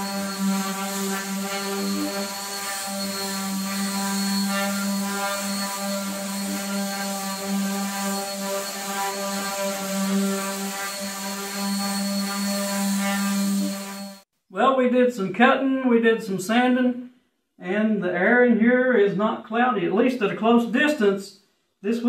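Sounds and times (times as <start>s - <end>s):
orbital sander sanding wood: 0.0s - 14.2s.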